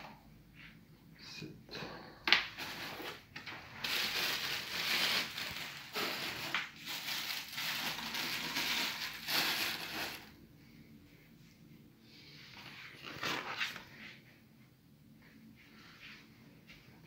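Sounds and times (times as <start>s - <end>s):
packaging crinkling: 2.6s - 10.3s.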